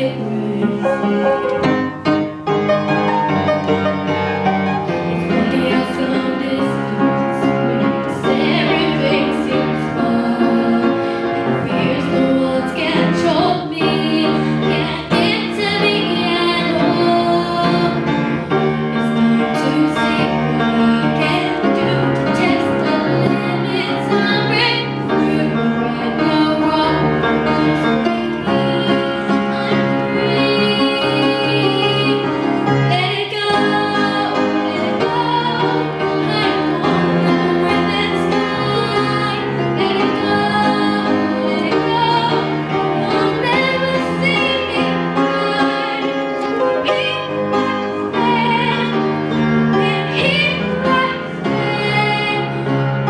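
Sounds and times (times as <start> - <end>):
upright piano accompaniment: 0.0 - 53.0
girl singing into a microphone: 11.6 - 18.0, 20.9 - 32.2, 32.9 - 49.0, 49.8 - 52.8.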